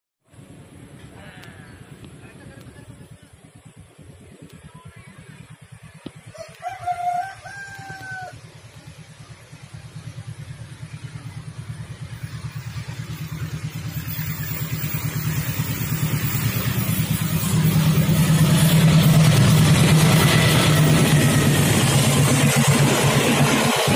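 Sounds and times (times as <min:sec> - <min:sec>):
diesel locomotive engine pulsing: 0:00.3 - 0:23.9
rooster crowing: 0:06.3 - 0:08.4.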